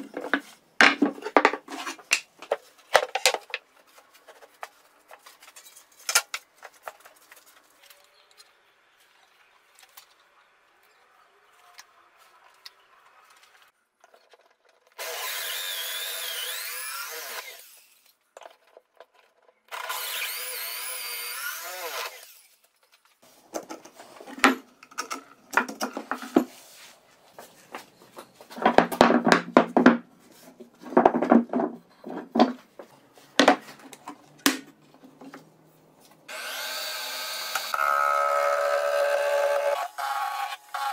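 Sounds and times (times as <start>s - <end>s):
electric drill boring into plywood: 15.0s - 17.7s, 19.7s - 22.3s, 36.3s - 40.9s
wood rubbing and knocking: 27.4s - 35.5s.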